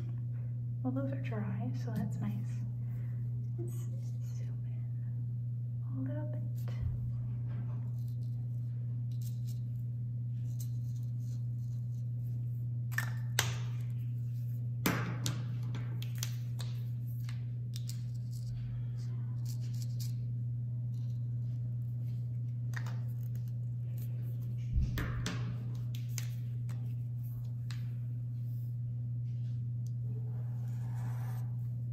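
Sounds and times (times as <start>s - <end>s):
steady low hum: 0.0s - 31.9s
marker tips scraping on paper: 30.3s - 31.8s.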